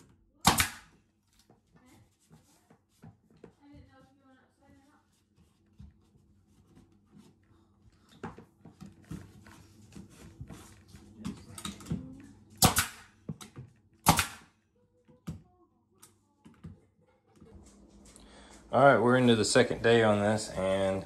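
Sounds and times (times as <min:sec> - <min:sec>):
pneumatic nailer firing: 0:00.4 - 0:00.9, 0:12.6 - 0:13.1, 0:14.0 - 0:14.4.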